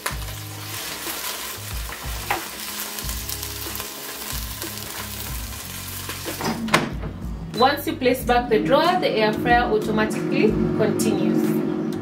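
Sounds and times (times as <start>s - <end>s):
fries sizzling: 0.0s - 6.6s
background music with bass: 0.0s - 12.0s.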